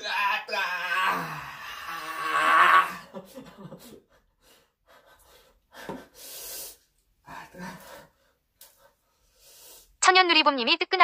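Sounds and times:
person breathing: 0:04.1 - 0:10.0.

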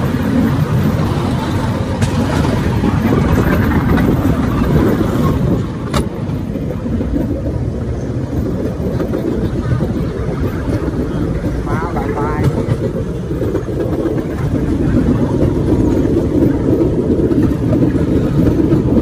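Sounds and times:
vehicle engine rumbling: 0:00.0 - 0:19.0.

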